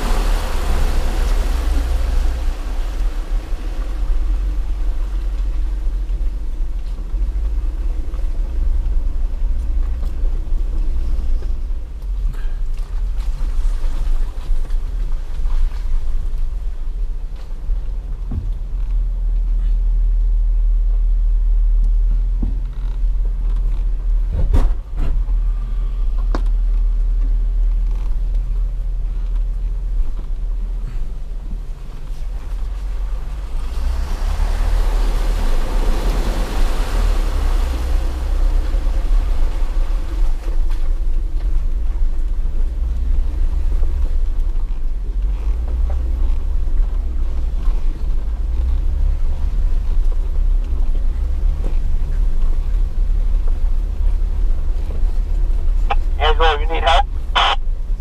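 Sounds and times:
tyres splashing through water: 0.0s - 19.2s, 31.7s - 41.3s
off-road vehicle engine rumble: 0.0s - 58.0s.

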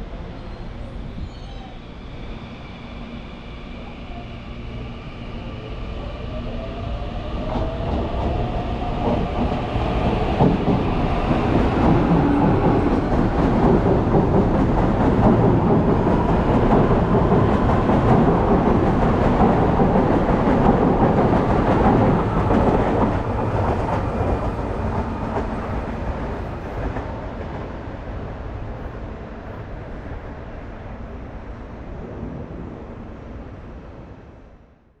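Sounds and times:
train wheels on rails: 6.6s - 28.9s.

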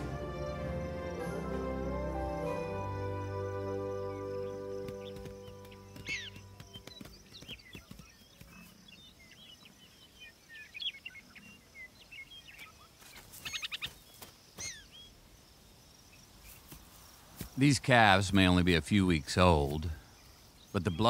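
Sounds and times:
bird trill: 0.0s - 14.0s, 14.6s - 15.1s
birds chirping and calling: 1.8s - 15.2s, 17.6s - 21.0s.

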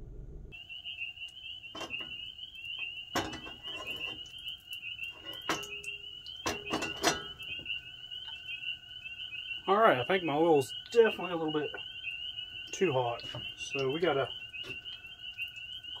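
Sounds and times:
frogs trilling: 0.5s - 16.0s
cast iron skillet knocks and clanks: 3.1s - 4.2s, 5.2s - 7.7s.

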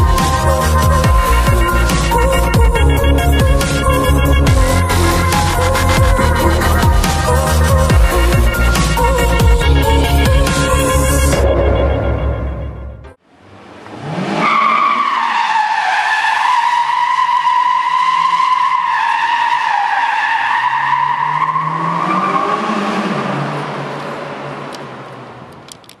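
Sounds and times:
tyres squealing in a skid: 14.1s - 23.5s.

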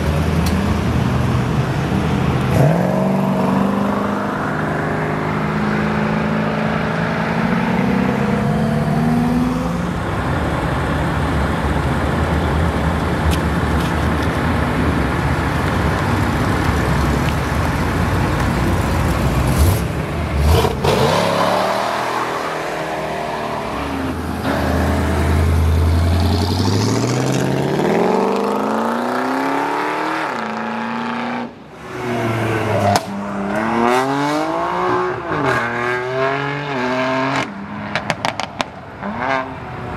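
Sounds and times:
car engines accelerating: 0.0s - 39.9s
engine revving: 19.5s - 31.4s.

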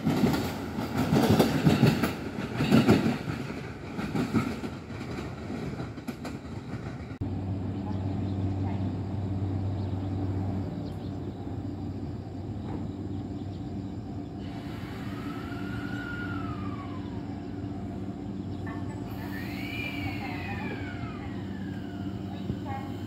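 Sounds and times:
electric train hum: 0.0s - 23.0s
rising and falling whines: 14.4s - 18.4s, 19.0s - 22.7s.

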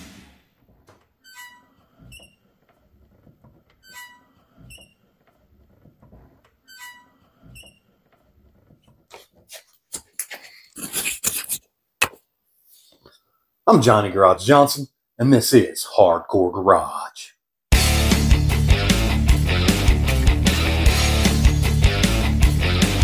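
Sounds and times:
door hinges squeaking: 0.7s - 9.5s.

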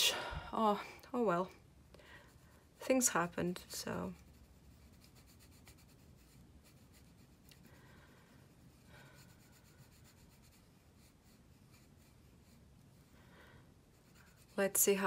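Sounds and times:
coloured pencil scratching on paper: 2.3s - 13.1s, 13.8s - 15.0s.

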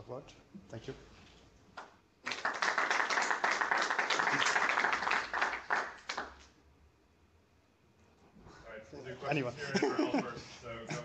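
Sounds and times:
audience applauding: 2.2s - 6.5s.

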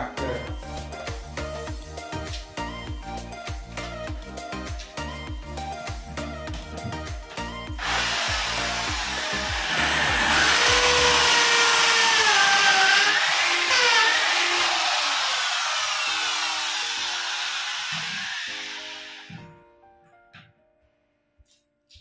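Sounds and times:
background music: 0.0s - 22.0s
electric drill whining: 7.8s - 19.4s.

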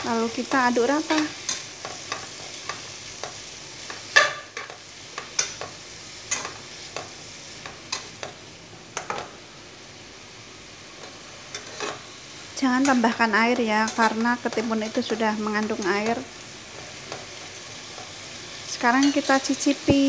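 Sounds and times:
vegetables sizzling in a pan: 0.0s - 20.0s
spatula scraping and knocking pan: 1.0s - 8.4s, 12.8s - 18.2s.

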